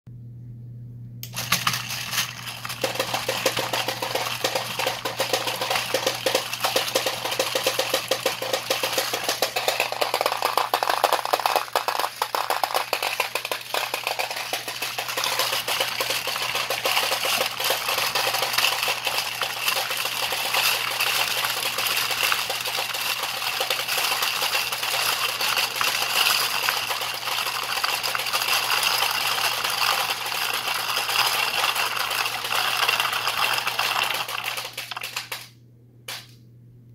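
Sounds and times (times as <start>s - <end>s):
steady low hum: 0.1s - 22.1s, 35.2s - 36.9s
steel balls clattering: 1.3s - 35.5s.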